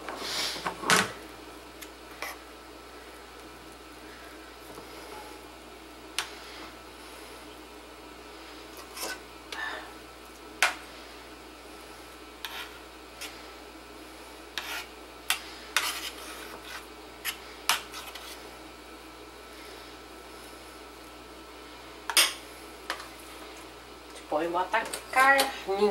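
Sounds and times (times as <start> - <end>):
spoon scraping mashed potato: 8.8 - 9.2, 12.4 - 13.4, 14.5 - 18.4.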